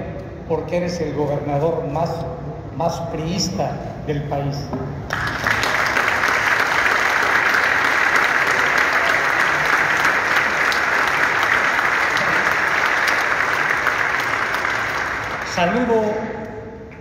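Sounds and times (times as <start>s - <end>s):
audience applauding: 5.1s - 15.9s.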